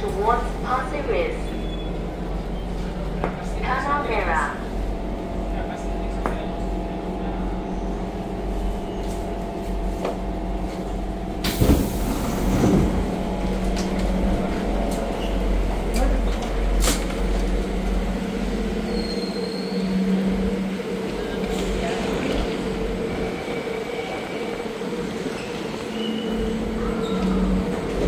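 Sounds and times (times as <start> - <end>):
train equipment humming: 0.0 - 28.0
air hiss of doors opening: 11.4 - 12.8.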